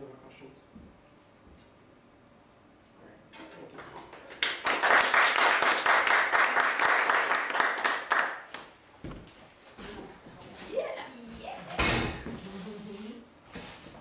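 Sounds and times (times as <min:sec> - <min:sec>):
audience clapping: 0:03.8 - 0:08.8.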